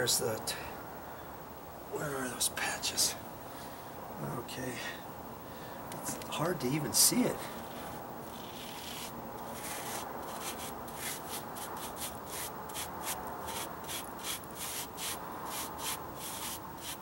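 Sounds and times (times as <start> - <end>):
brush scrubbing on stucco: 7.5 - 17.0.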